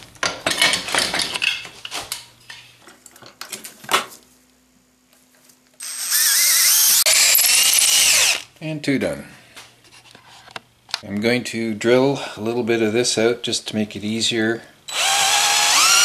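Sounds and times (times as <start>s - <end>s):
electric drill boring into wood: 5.8s - 8.5s, 14.9s - 16.0s.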